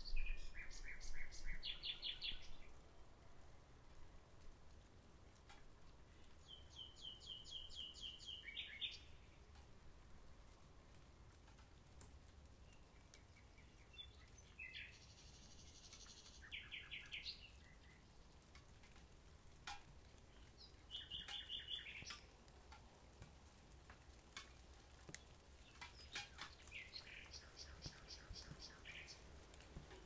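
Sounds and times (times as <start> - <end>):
nightingale singing: 0.0 - 2.7, 6.4 - 9.3, 12.7 - 18.1, 20.3 - 22.3, 25.6 - 29.3
faint clicks: 3.9 - 6.4, 10.4 - 30.0.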